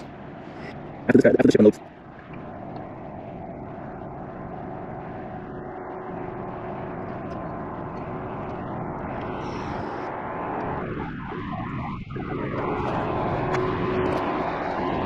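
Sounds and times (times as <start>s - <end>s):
ship engine drone: 0.0s - 11.0s.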